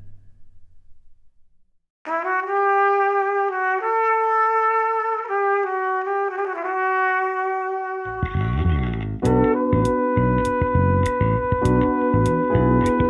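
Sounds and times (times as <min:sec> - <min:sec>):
melody of long held notes: 0:08.2 - 0:13.0.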